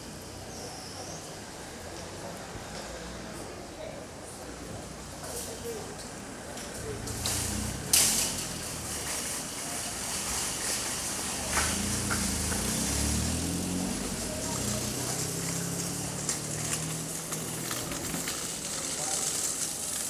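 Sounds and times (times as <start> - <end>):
background noise: 0.0 - 20.0
murmur of voices: 0.4 - 20.0.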